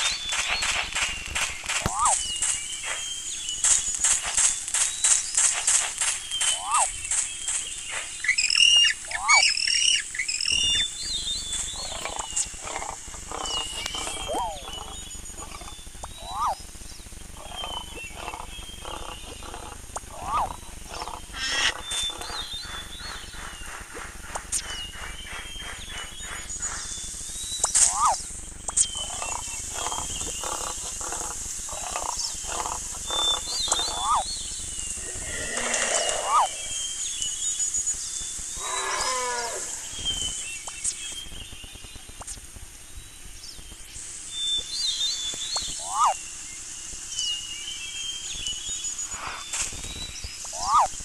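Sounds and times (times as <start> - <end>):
animal calls: 1.8 - 2.3, 6.4 - 7.0, 8.2 - 10.9, 11.5 - 16.6, 17.4 - 23.3, 27.8 - 28.2, 28.9 - 34.4, 35.0 - 37.0, 38.6 - 40.2, 45.8 - 46.2, 50.5 - 50.9.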